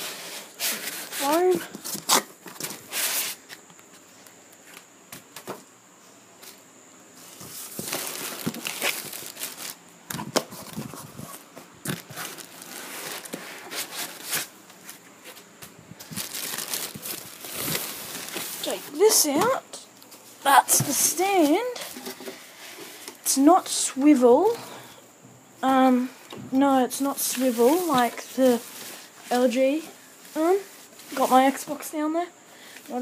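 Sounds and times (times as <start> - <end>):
cardboard rustling: 7.2 - 22.2, 27.1 - 29.8
plastic wrap crinkling: 7.4 - 19.3.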